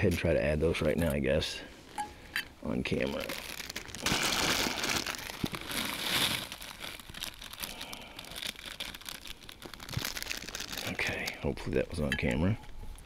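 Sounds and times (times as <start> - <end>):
noodle packet crinkling: 3.0 - 11.5.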